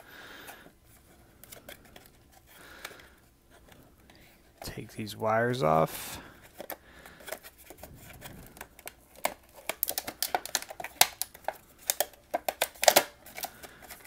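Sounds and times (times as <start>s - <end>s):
cardboard and plastic crinkling: 6.4s - 14.0s.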